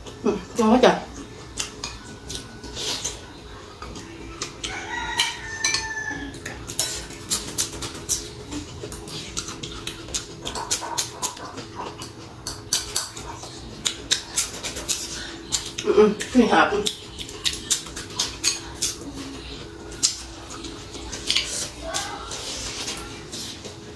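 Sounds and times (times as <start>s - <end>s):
lip-smacking and chewing: 1.2s - 5.4s, 6.4s - 23.9s
spoon and chopsticks tapping glass: 5.2s - 6.0s.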